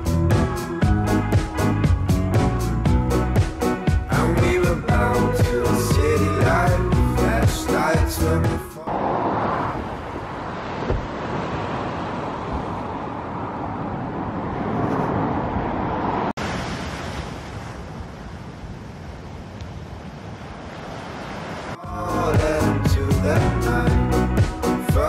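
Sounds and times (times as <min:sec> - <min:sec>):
surf washing on shore: 0:08.8 - 0:21.9.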